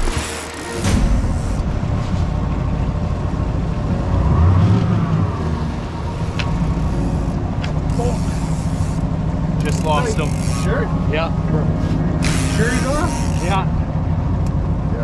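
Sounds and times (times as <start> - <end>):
outboard motor running: 5.6 - 15.0.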